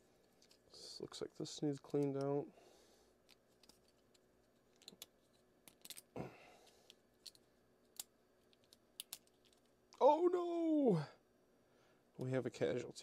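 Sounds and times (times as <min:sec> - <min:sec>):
plastic parts clicking: 0:03.3 - 0:06.1, 0:06.8 - 0:09.7.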